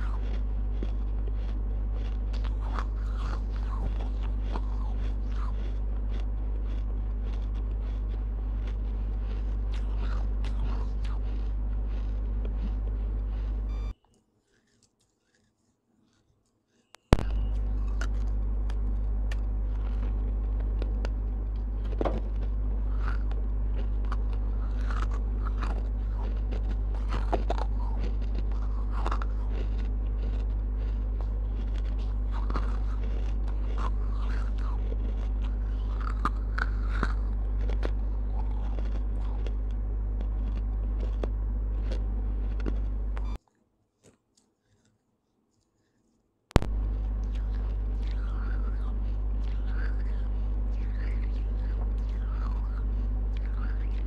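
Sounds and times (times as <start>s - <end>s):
clay pieces crunching when chewed: 0.0s - 54.0s
low electrical hum: 0.0s - 54.0s.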